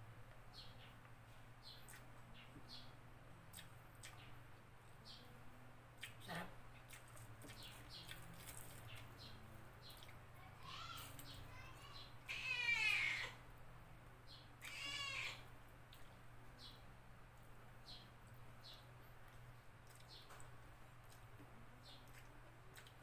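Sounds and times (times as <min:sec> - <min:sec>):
mouth clicks and chewing: 0:01.8 - 0:02.1, 0:03.5 - 0:04.4, 0:06.0 - 0:09.2, 0:18.2 - 0:23.0.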